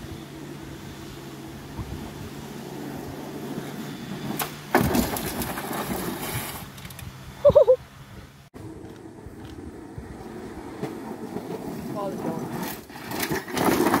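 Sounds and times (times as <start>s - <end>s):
go-kart skidding on gravel: 0.0s - 7.0s, 8.6s - 14.0s.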